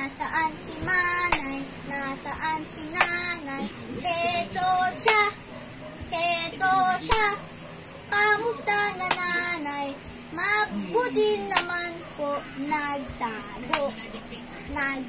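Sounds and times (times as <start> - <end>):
boy singing: 0.0 - 5.4, 6.0 - 7.4, 8.1 - 14.0, 14.7 - 15.0
hand claps: 1.3 - 1.6, 3.0 - 3.2, 5.0 - 5.3, 7.1 - 7.4, 9.0 - 9.4, 11.5 - 11.8, 13.7 - 14.0.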